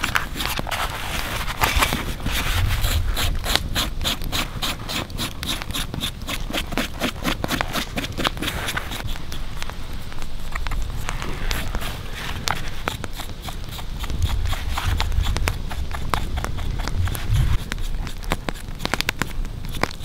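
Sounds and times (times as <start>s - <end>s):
knife scraping hide: 0.0s - 20.0s.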